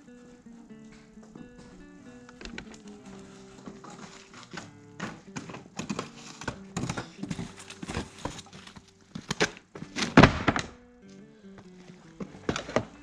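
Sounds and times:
pallet thudding down: 3.9 - 10.8.

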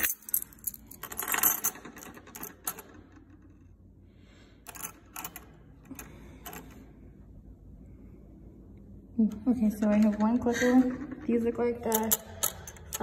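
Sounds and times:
metal keys clinking: 0.0 - 2.9, 11.8 - 13.0.

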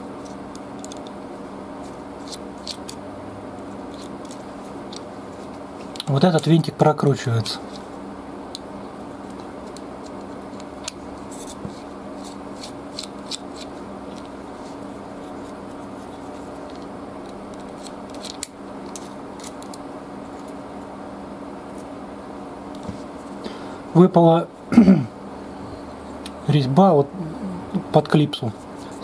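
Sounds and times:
steady low hum: 0.0 - 29.0.

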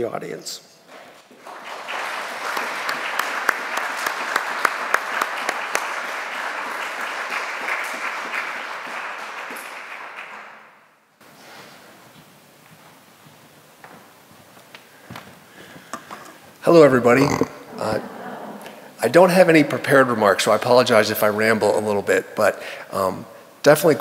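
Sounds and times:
audience applauding: 1.3 - 10.9.

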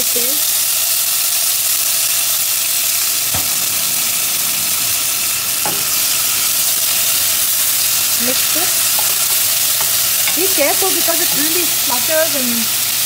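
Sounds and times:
spices sizzling in hot oil: 0.0 - 13.0
wooden spatula against pan: 7.8 - 12.0.

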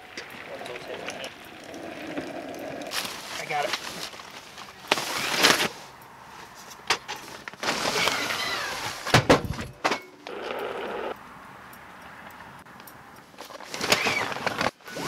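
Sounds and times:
plastic bags rustling: 0.0 - 10.0, 13.4 - 15.0
hand truck rolling on pavement: 0.0 - 15.0.

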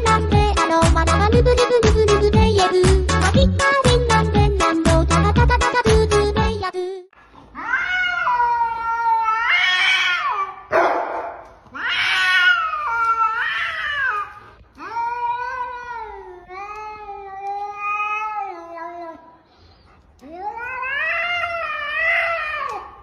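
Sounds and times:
cat yowling: 7.5 - 10.8, 11.7 - 16.7, 20.3 - 23.0.

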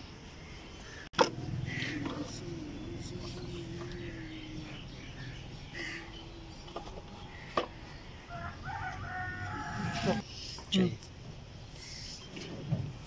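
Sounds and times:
rooster crowing: 8.2 - 10.2.

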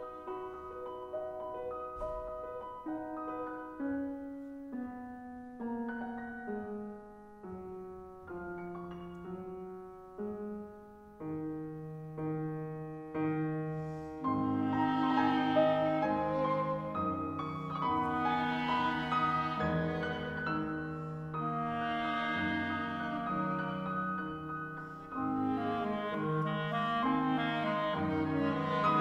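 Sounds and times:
grand piano single notes: 0.0 - 29.0
clarinet: 11.2 - 29.0
violin: 14.2 - 29.0.

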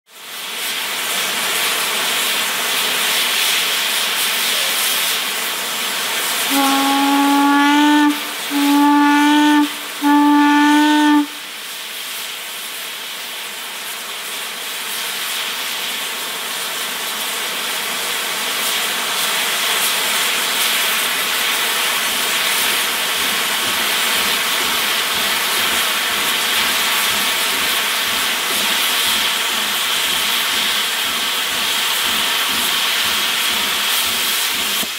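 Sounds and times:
steam hissing: 0.1 - 34.9
steam whistle blasts: 6.4 - 11.8.

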